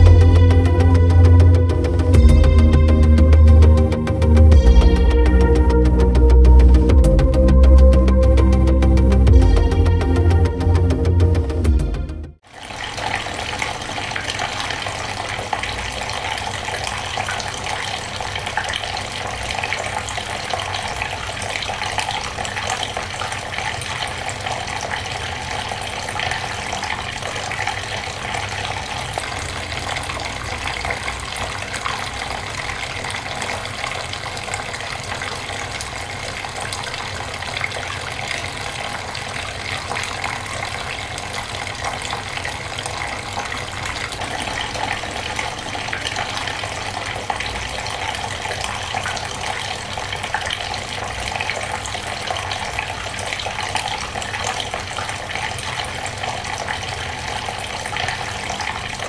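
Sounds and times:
fountain water trickling: 12.4s - 59.0s.

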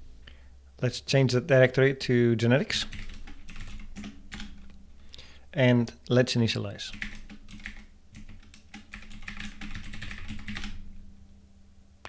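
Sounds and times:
typing on keyboard: 2.8s - 4.6s, 6.9s - 10.8s.

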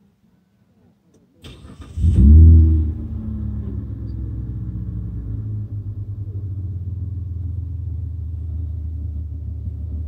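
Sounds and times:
car engine idling: 1.5s - 10.0s.

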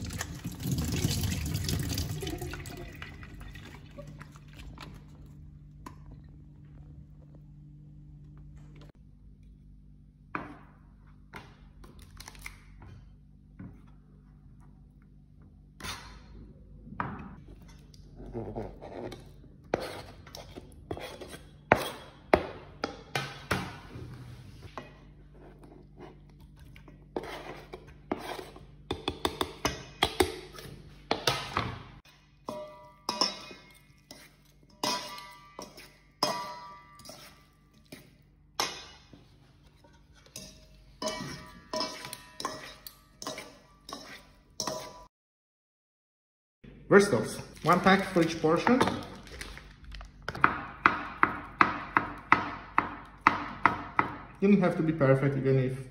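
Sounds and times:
fork and spoon scraping metal bowl: 17.6s - 22.2s, 25.3s - 28.7s, 32.5s - 39.0s, 39.7s - 45.1s.

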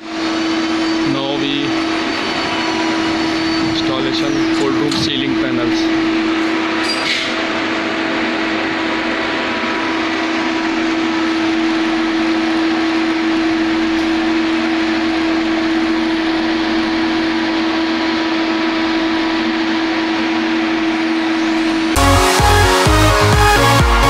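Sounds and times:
steady mechanical drone: 0.0s - 24.0s.

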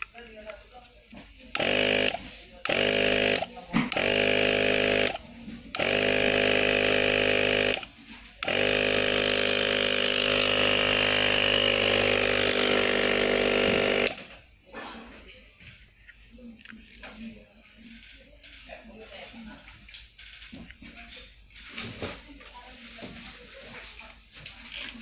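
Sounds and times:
air compressor running: 1.1s - 14.4s.

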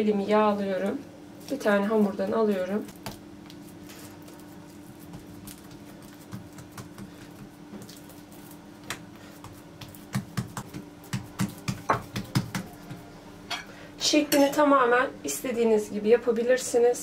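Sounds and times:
faint steady hum: 0.0s - 17.0s
hands patting dough: 1.4s - 13.1s.

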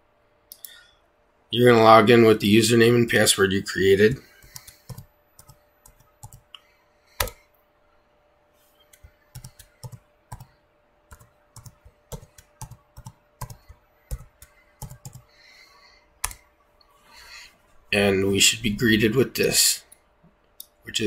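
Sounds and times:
computer keyboard typing: 4.4s - 6.5s, 7.2s - 7.4s, 8.9s - 10.5s, 11.1s - 15.3s, 16.2s - 16.4s.

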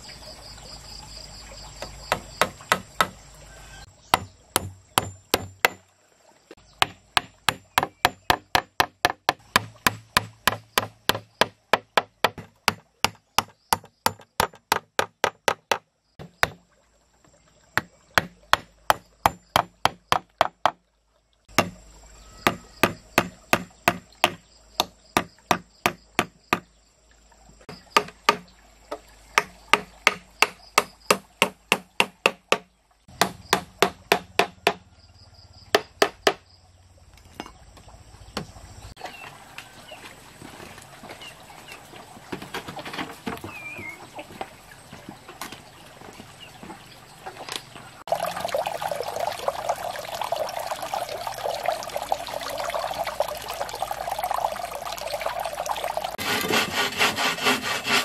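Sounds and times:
hand tool striking wood: 1.8s - 3.2s, 4.1s - 5.8s, 6.8s - 16.6s, 17.8s - 20.8s, 21.5s - 21.8s, 22.4s - 26.7s, 28.0s - 28.5s, 29.4s - 34.8s, 35.7s - 36.4s, 56.2s - 58.0s.

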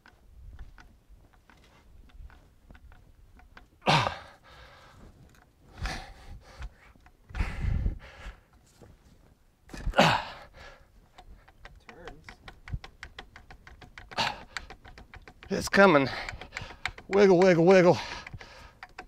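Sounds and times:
man's effortful exhalations: 9.8s - 10.8s.

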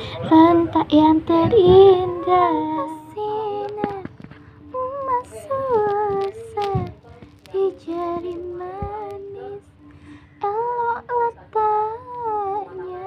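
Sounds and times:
singer breathing: 0.0s - 0.3s, 9.8s - 10.4s
girl singing: 0.0s - 13.0s.

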